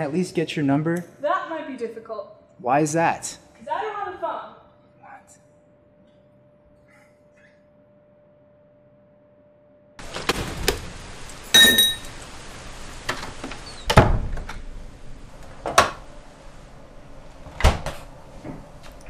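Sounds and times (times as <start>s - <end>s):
keys clattering into glass bowl: 11.5s - 12.1s.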